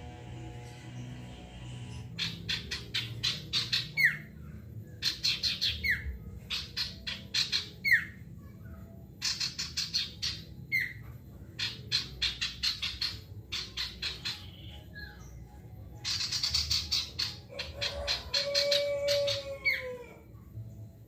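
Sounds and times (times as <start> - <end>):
songbird calling: 2.2 - 4.3, 5.0 - 8.2.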